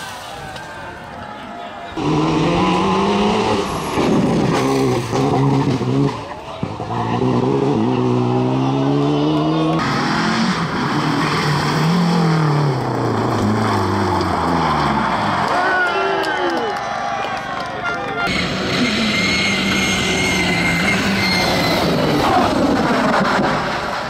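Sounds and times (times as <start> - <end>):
rally car engine at full throttle: 1.9 - 15.8, 18.2 - 24.0
rally car revving on gravel: 2.0 - 15.4, 18.3 - 24.0.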